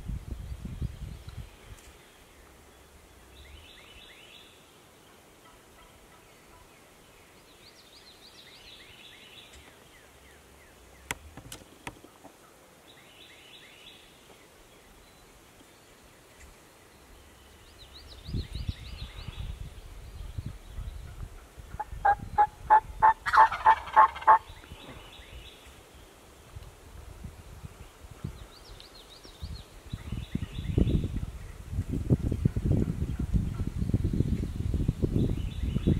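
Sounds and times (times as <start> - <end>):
turkey gobbling: 21.7 - 24.5.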